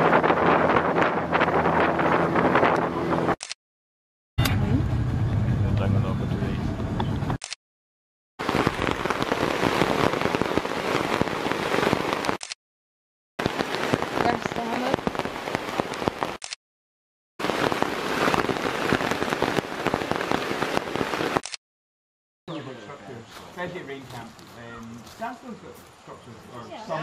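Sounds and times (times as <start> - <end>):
heavy rain on a tarp: 8.4 - 12.6, 13.4 - 16.6, 17.4 - 21.6.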